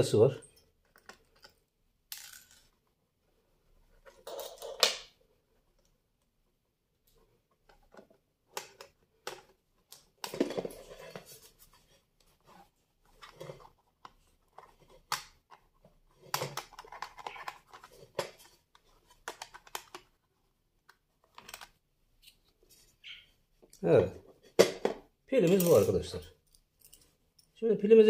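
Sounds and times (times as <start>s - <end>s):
plastic clicks and scraping: 13.1s - 22.6s.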